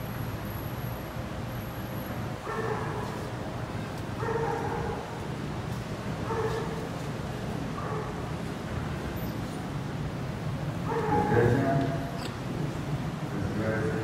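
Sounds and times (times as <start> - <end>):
dog yelping: 2.5 - 3.1, 4.2 - 5.2, 6.3 - 6.8, 10.8 - 12.2.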